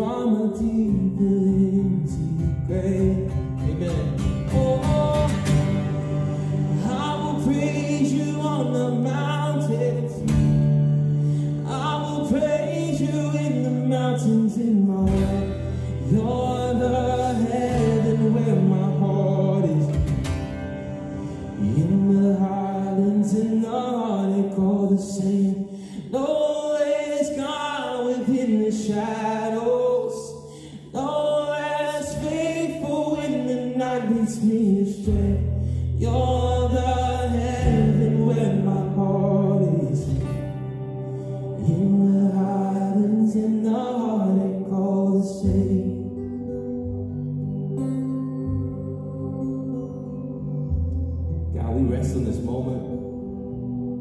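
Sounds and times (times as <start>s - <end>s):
man singing into a microphone: 0.0s - 20.6s, 21.2s - 46.7s
acoustic guitar: 0.0s - 54.0s
sustained low chords: 15.1s - 23.2s, 45.6s - 54.0s.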